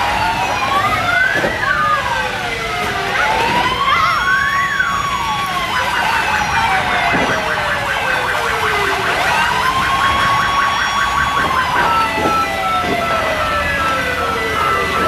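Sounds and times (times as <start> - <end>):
wailing siren: 0.0 - 15.0
warbling siren: 0.0 - 15.0.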